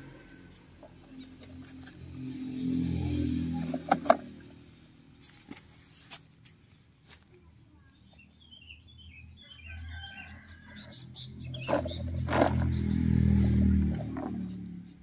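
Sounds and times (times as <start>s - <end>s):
small birds chirping: 7.3s - 15.0s.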